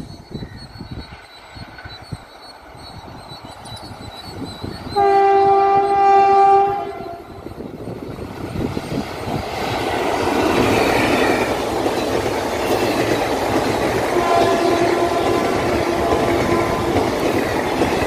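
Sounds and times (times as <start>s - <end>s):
train coaches rushing past: 0.0s - 18.0s
locomotive horn blast: 5.0s - 7.2s, 14.1s - 17.2s.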